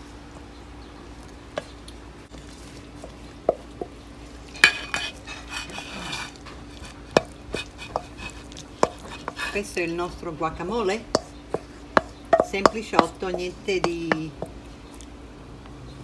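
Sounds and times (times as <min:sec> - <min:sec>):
spoon scraping a metal bowl: 0:04.5 - 0:09.8.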